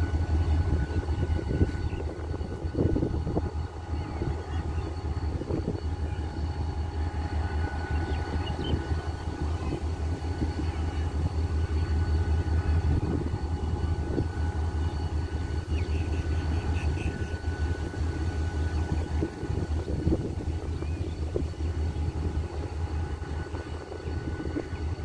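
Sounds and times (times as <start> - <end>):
diesel locomotive engine drone: 0.0 - 25.0
faint high whine: 0.0 - 25.0.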